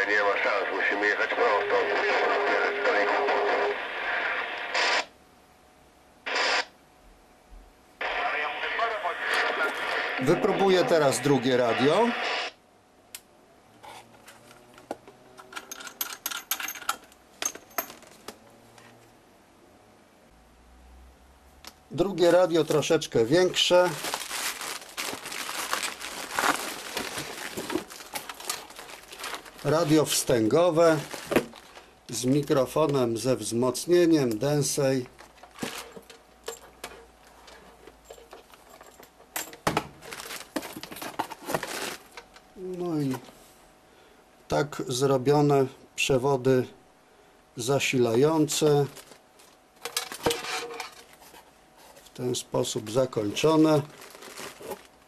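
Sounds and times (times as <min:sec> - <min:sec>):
plastic packaging rustling: 0:22.2 - 0:32.7, 0:35.0 - 0:39.0, 0:40.0 - 0:42.4, 0:48.5 - 0:52.2, 0:53.2 - 0:55.0
plastic and cardboard handling: 0:23.6 - 0:32.5, 0:35.1 - 0:38.7, 0:39.7 - 0:42.3, 0:48.8 - 0:52.2, 0:53.2 - 0:55.0.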